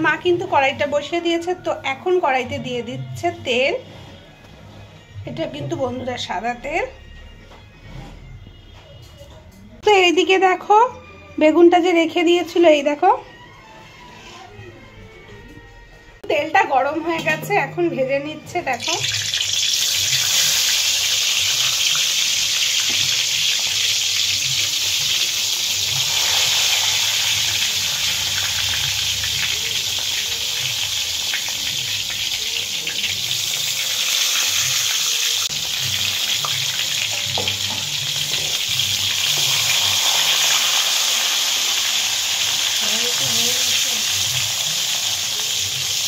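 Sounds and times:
hot oil sizzling in a pan: 18.7 - 46.0.

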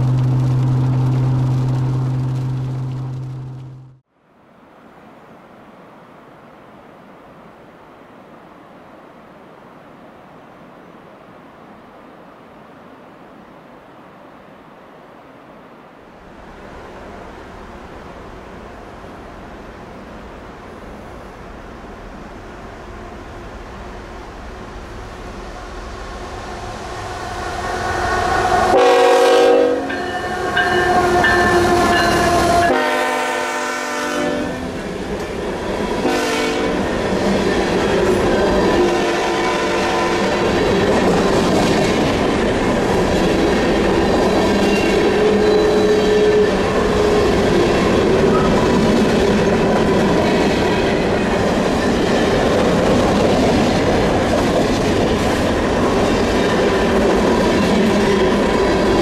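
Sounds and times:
train cars rumbling and clattering: 0.0 - 4.0, 34.6 - 59.0
train horn blasts: 27.6 - 34.7, 36.0 - 36.8, 38.8 - 40.5.

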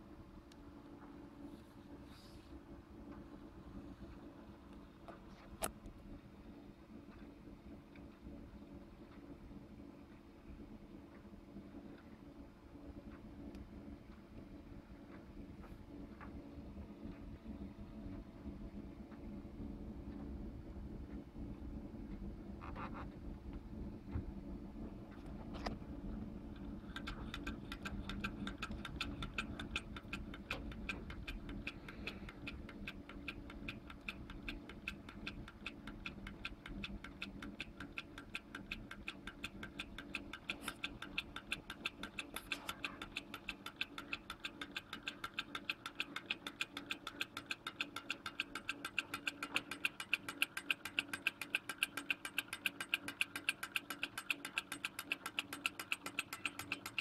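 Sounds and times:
model engine ticking: 26.4 - 57.0.

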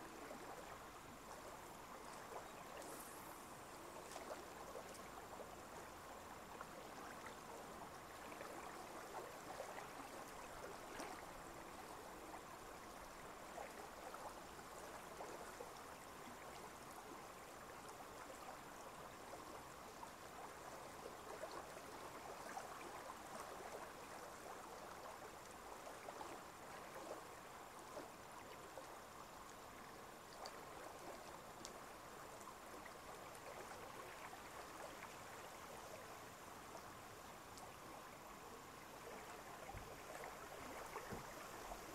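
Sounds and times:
gently moving water: 21.3 - 41.9.

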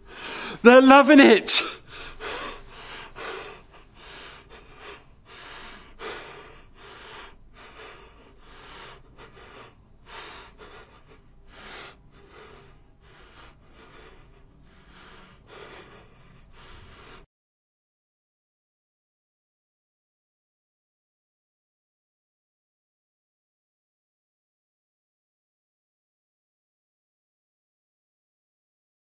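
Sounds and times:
low room hum: 0.0 - 17.2
man breathing heavily: 0.0 - 17.3.

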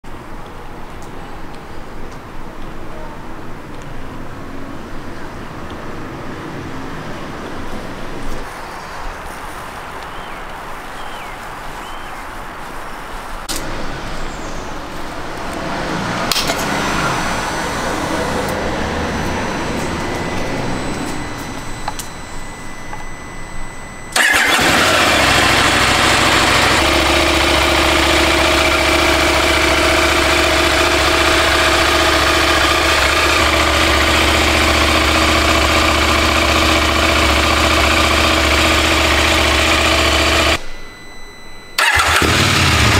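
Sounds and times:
clicks: 18.4 - 23.2
motorcycle engine idling: 24.1 - 40.6, 41.8 - 42.9.

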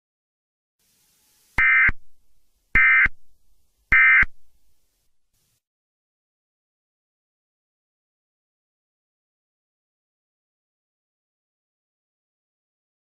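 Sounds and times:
digital tone bursts: 1.6 - 2.0, 2.8 - 3.2, 3.9 - 4.4.

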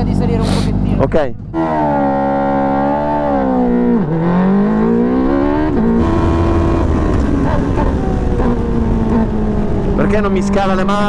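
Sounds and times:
race car engine revving: 0.0 - 11.0
wind noise: 4.7 - 11.0.

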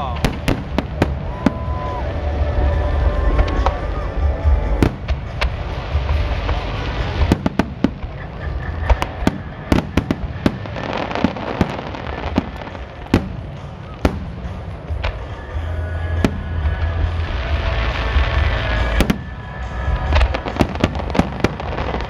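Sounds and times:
fireworks bangs and crackles: 0.0 - 22.0
low rumble: 0.2 - 10.8.

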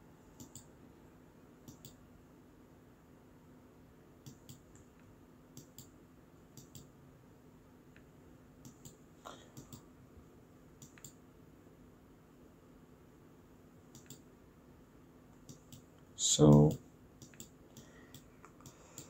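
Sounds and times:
low steady hum: 0.0 - 19.0
faint computer mouse clicks: 0.4 - 0.7, 1.7 - 2.0, 4.2 - 4.9, 6.6 - 6.9, 8.0 - 9.9, 10.8 - 11.2, 13.9 - 14.2, 17.2 - 19.0.

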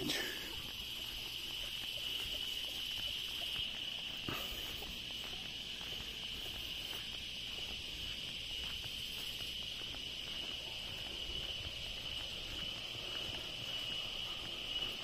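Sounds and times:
footsteps on dirt track: 0.0 - 15.0
insects droning: 0.0 - 15.0.

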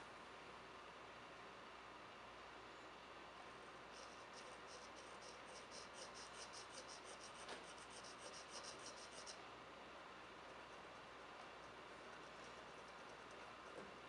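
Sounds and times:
pen nib scratching on stoneware: 4.0 - 9.4, 12.0 - 13.8.

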